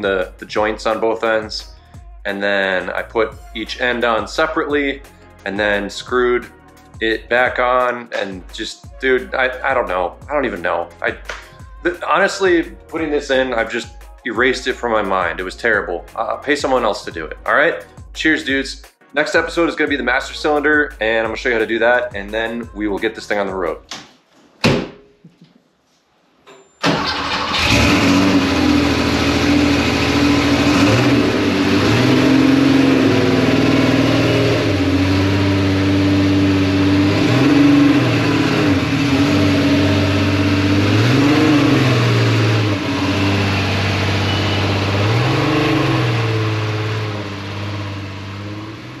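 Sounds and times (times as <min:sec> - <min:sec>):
car engine starting and running: 0:26.8 - 0:49.0
engine throttle blips: 0:26.8 - 0:49.0.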